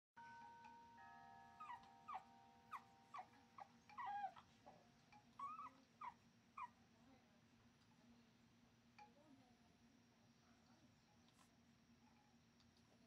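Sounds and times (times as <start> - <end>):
puppy whimpering: 1.6 - 4.8, 5.4 - 6.8.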